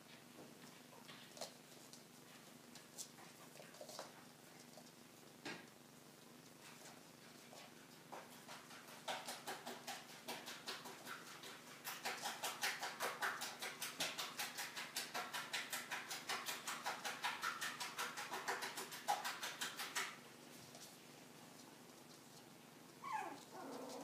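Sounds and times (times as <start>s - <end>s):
puppies' paws pattering: 0.0s - 24.0s
puppies yipping: 23.0s - 24.0s.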